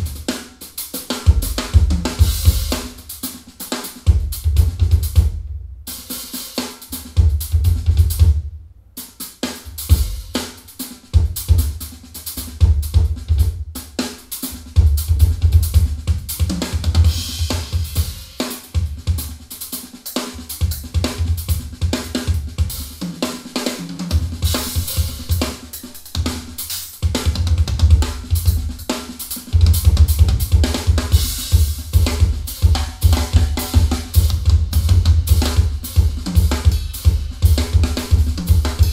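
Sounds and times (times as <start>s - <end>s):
drum kit through speakers: 0.0s - 38.9s
deep kick drum bass: 4.1s - 5.8s, 29.6s - 38.9s.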